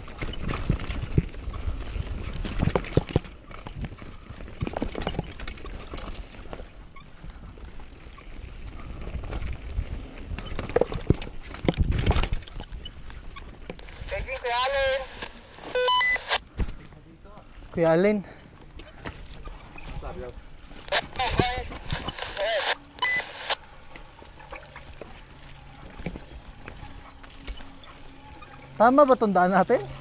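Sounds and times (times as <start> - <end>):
bike knocks and rattles: 0.0 - 7.2, 9.1 - 13.8
wind: 0.0 - 30.0.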